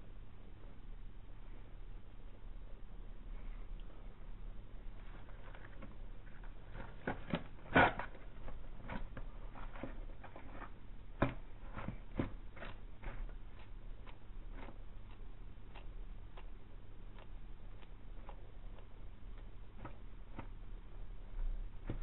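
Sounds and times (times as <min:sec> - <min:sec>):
lizard biting and chewing: 0:05.5 - 0:20.6.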